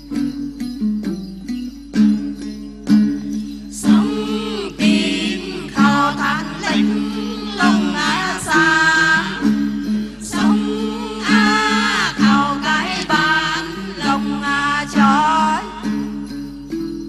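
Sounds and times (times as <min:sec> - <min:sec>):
woman singing: 0:03.8 - 0:09.6, 0:10.2 - 0:16.0.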